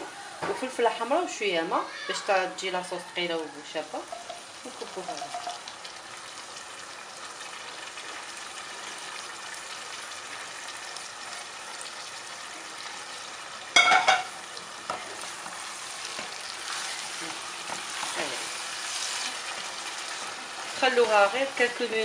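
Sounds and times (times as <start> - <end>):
vegetables sizzling in a pot: 0.0 - 22.0
saucepan clanging: 13.8 - 14.4
spatula stirring pot: 14.9 - 20.9.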